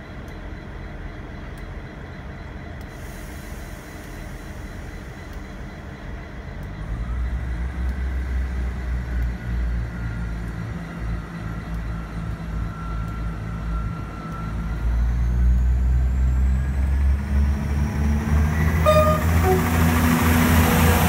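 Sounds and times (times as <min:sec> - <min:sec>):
locomotive engine rumbling: 0:00.0 - 0:21.0.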